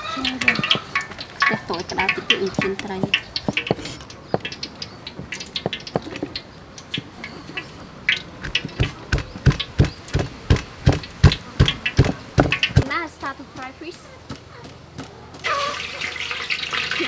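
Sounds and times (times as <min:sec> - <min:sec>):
cleaver chopping on wooden board: 0:08.4 - 0:12.9.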